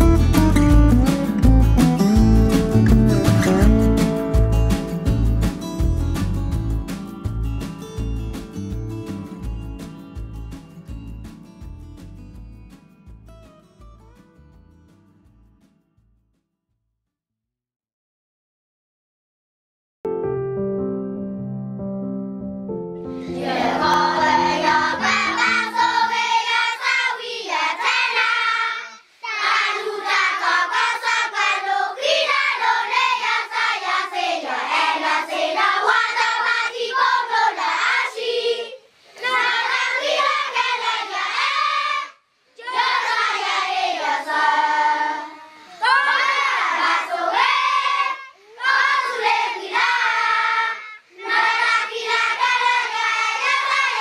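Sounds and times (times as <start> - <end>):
children singing together: 23.2 - 54.0.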